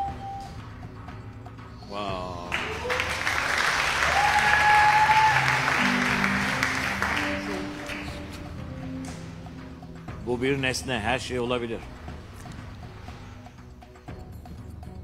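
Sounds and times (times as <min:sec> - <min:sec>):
game show background music: 0:00.0 - 0:15.0
audience applauding: 0:02.4 - 0:08.5.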